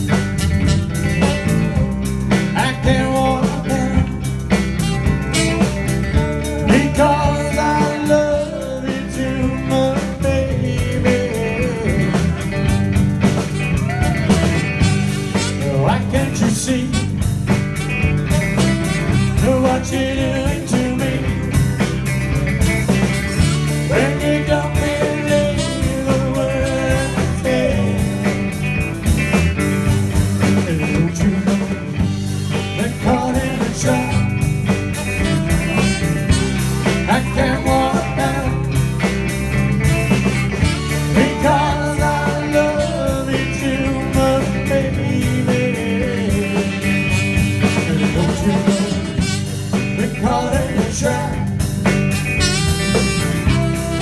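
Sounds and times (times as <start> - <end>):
live blues-rock band: 0.0 - 54.0
tenor saxophone: 0.5 - 1.4, 4.7 - 6.7, 12.6 - 16.0, 16.7 - 20.2, 23.1 - 27.5, 34.0 - 37.2, 39.8 - 41.4, 47.0 - 50.0, 52.0 - 54.0
man singing: 2.3 - 5.3, 6.2 - 12.8, 13.5 - 21.9, 23.4 - 28.7, 30.2 - 35.5, 36.2 - 39.0, 40.6 - 51.7, 52.5 - 54.0.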